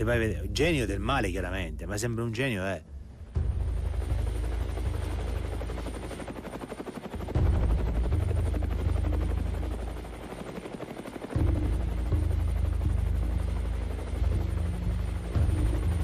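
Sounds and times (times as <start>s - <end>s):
helicopter rotor chopping: 3.2s - 16.0s.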